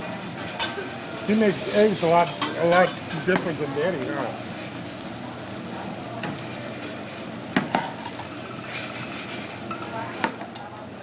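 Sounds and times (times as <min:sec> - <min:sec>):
food sizzling on a griddle: 0:00.0 - 0:11.0
metal spatula clinking on steel: 0:08.0 - 0:10.0.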